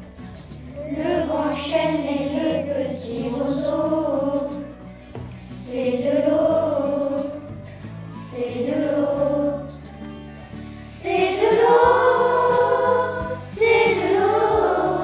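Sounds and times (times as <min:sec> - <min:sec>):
low instrumental accompaniment: 0:00.0 - 0:15.0
choir singing held notes: 0:05.6 - 0:07.4, 0:08.2 - 0:09.7, 0:10.8 - 0:15.0.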